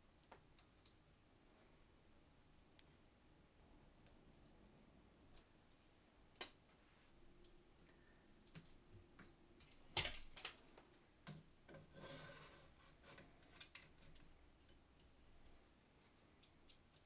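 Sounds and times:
soft rustle: 6.6s - 7.3s.

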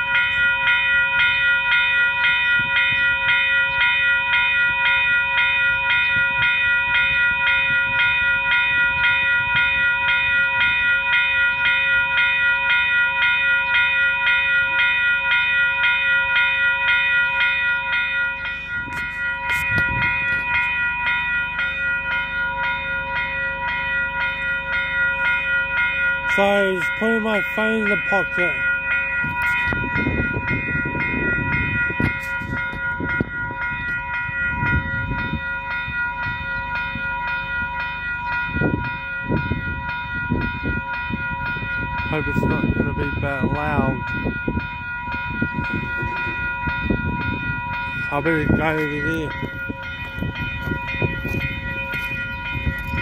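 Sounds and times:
level crossing warning bell: 0.0s - 53.0s.

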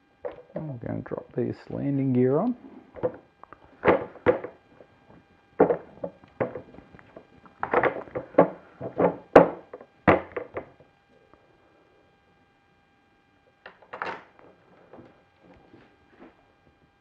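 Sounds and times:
hard knocks on model airplane: 3.8s - 4.6s, 7.7s - 10.7s.

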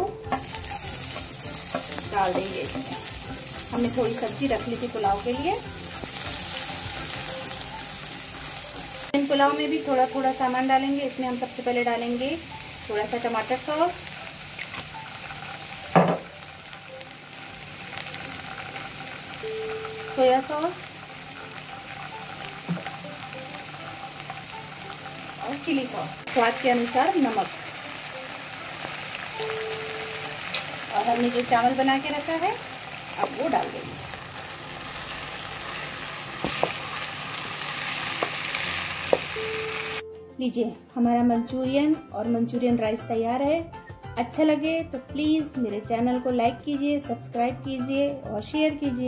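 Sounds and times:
vegetables sizzling in oil: 0.0s - 40.0s
sharp knocks against a pan: 15.9s - 16.3s.

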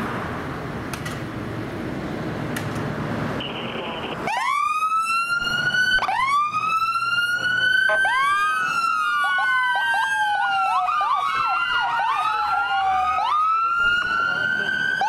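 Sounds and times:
siren wailing: 3.4s - 15.0s
second siren yelping: 3.5s - 15.0s.

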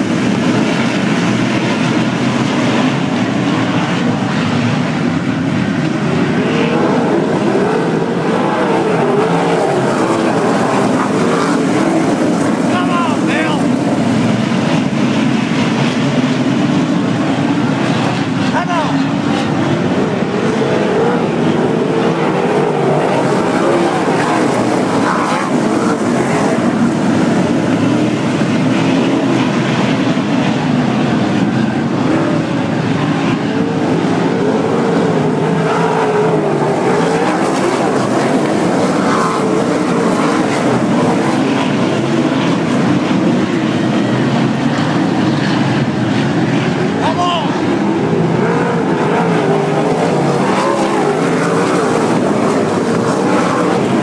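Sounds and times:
race car engines blaring: 0.0s - 54.0s.

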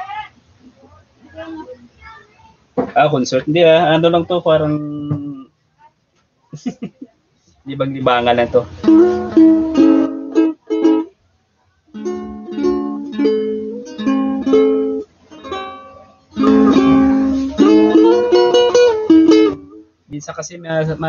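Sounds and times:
ukulele strummed in chords: 4.6s - 5.5s, 8.4s - 11.2s, 11.9s - 20.0s.

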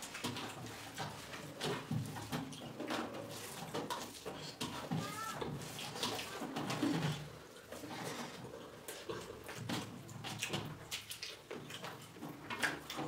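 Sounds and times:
chewing and mouth noises: 5.7s - 13.0s.

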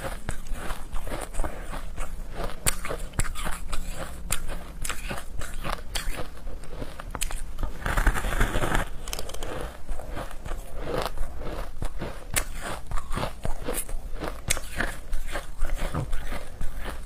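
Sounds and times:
crunching shaved ice: 0.0s - 17.0s.

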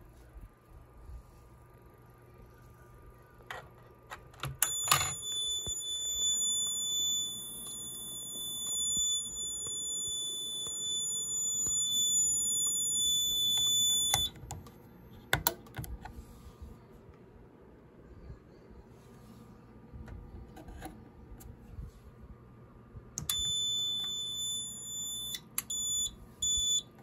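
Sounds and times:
fire alarm steady high tone: 4.6s - 14.4s, 23.2s - 26.9s.

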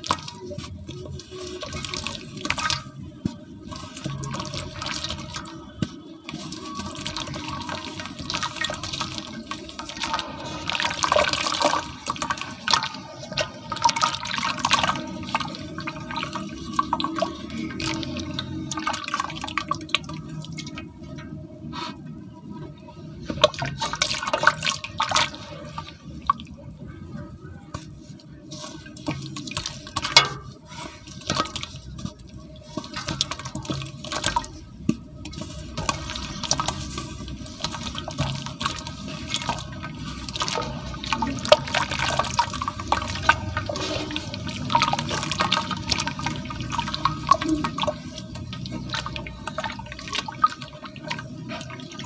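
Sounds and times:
water dripping: 0.0s - 21.6s, 27.7s - 52.0s
wet cement crumbling: 27.8s - 52.0s.

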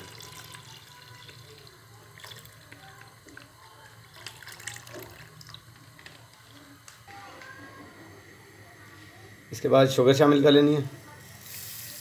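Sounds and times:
milk pouring into a pan: 0.0s - 7.0s.

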